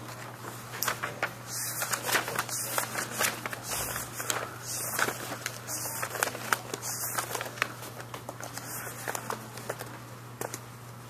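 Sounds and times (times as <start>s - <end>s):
paper rustling: 0.0s - 10.6s
low electrical hum: 0.0s - 11.0s.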